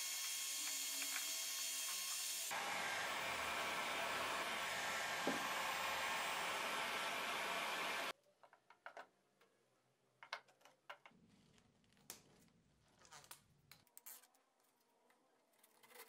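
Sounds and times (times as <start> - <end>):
heat gun blowing air: 0.0 - 8.1.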